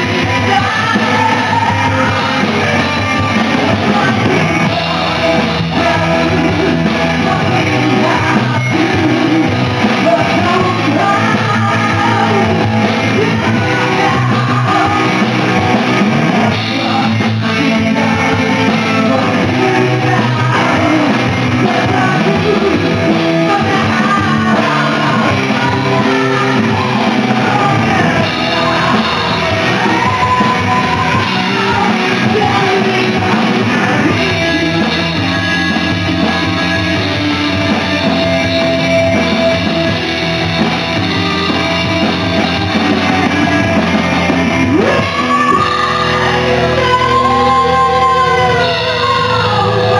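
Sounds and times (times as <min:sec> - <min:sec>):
lead vocal singing: 0:00.0 - 0:49.9
rock band playing live: 0:00.0 - 0:49.9.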